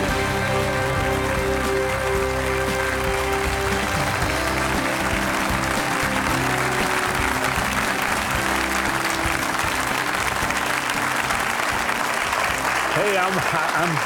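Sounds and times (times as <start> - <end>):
instrumental theme music: 0.0 - 14.0
studio audience applauding: 0.0 - 14.0.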